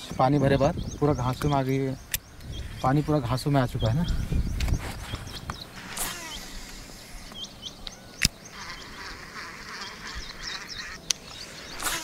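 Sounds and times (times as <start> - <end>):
high animal chirps: 4.5 - 12.0.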